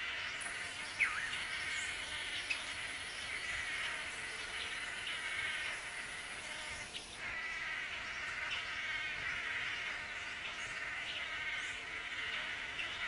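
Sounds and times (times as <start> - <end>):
buzzy bird chorus: 0.0 - 13.0.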